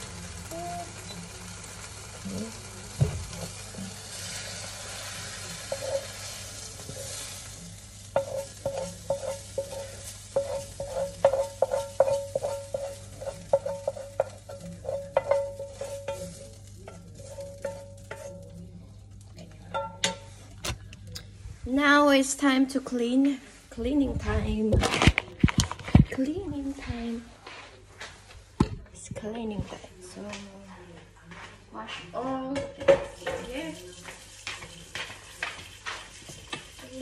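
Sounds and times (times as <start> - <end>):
soft sizzle: 0.0 - 37.0
utensil scraping a frying pan: 3.2 - 18.5, 33.2 - 37.0.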